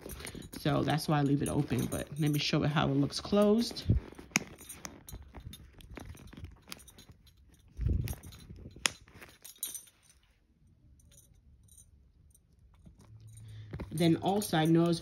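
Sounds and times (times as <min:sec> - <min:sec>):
leather rubbing: 0:00.0 - 0:10.3
small metal clicks and clinks: 0:00.0 - 0:15.0.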